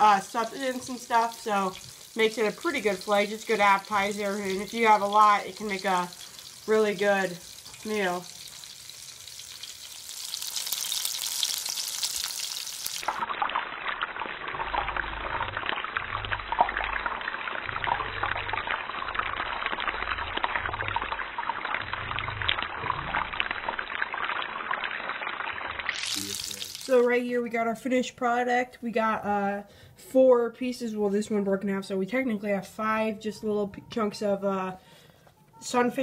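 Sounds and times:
fish fillets sizzling in frying: 0.0s - 14.6s, 23.6s - 27.0s.

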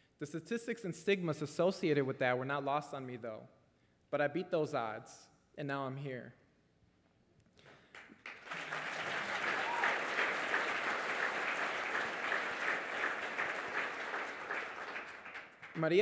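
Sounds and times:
audience applauding: 7.9s - 16.0s.

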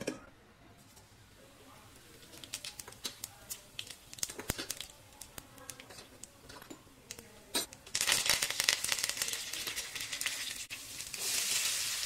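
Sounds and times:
seeds crackling in hot oil: 1.0s - 6.4s, 7.8s - 12.0s.

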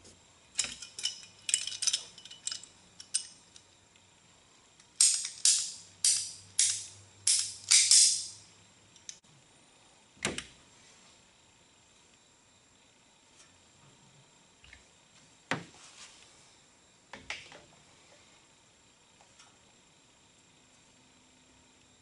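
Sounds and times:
hose handling clicks and rustles: 0.6s - 3.6s.

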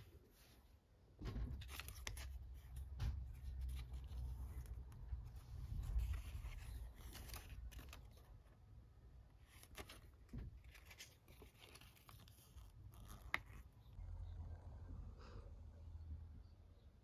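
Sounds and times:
paper rustling and crinkling: 1.2s - 8.7s, 9.3s - 13.9s.

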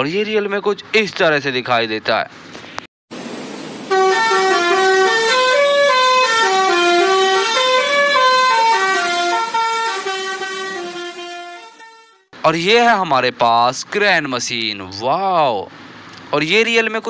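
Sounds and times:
truck musical horn playing: 3.9s - 12.3s.

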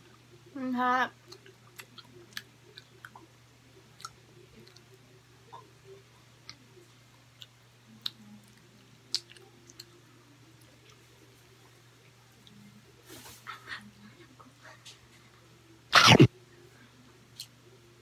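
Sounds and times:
close-up chewing with mouth clicks: 1.2s - 5.7s, 7.3s - 10.0s.

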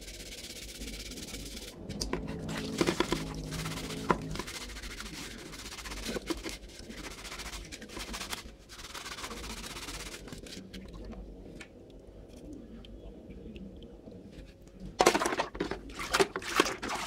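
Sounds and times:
brush scrubbing wet plastic: 0.0s - 11.1s, 14.3s - 17.0s
water splashing: 15.0s - 17.0s.

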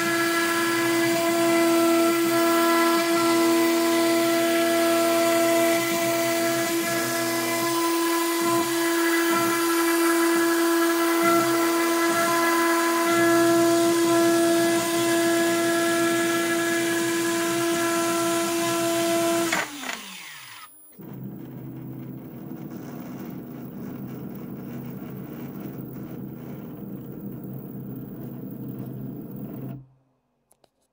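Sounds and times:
router spindle whine: 0.0s - 29.8s
low machine hum: 21.0s - 29.8s.

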